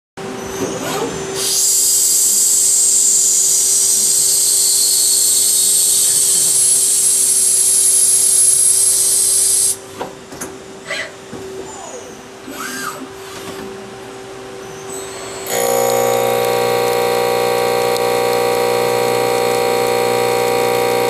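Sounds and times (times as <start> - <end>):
lathe cutting whine and hiss: 1.3 - 9.8, 14.9 - 21.0
machine hum: 15.2 - 21.0.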